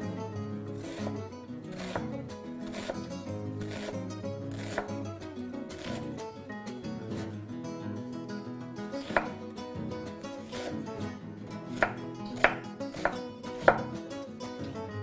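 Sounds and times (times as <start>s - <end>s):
background music: 0.0s - 15.0s
knife chopping on wooden board: 1.7s - 5.0s, 5.7s - 6.1s, 9.0s - 9.4s, 10.4s - 10.8s, 11.7s - 14.0s.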